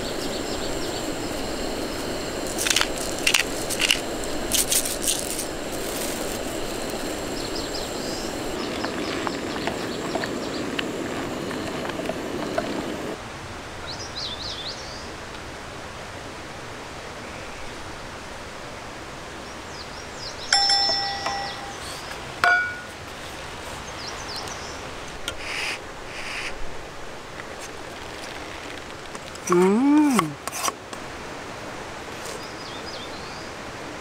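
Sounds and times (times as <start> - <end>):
faint bird chirps: 20.3 - 22.2
metal clinks: 20.5 - 22.9.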